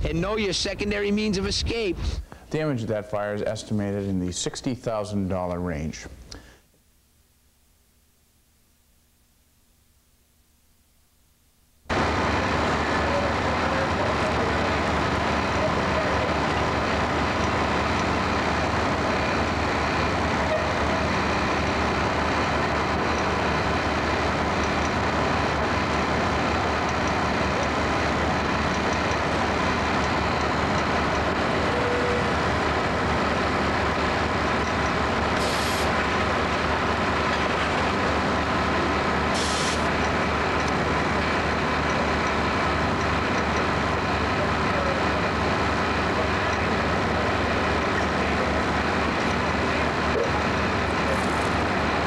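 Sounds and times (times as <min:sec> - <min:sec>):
truck engine droning: 0:11.9 - 0:52.0
high hisses: 0:35.4 - 0:36.0, 0:39.3 - 0:40.0.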